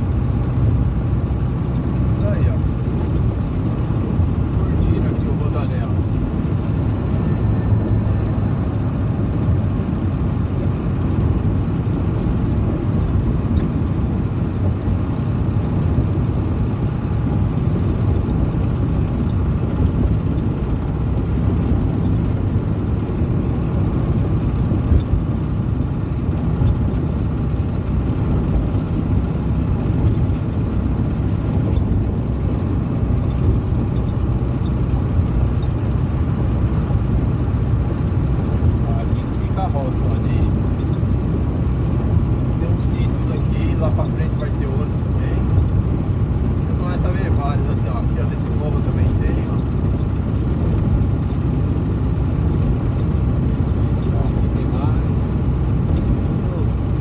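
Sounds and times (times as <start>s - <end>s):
road and wind noise: 0.0s - 57.0s
truck engine drone: 0.0s - 57.0s.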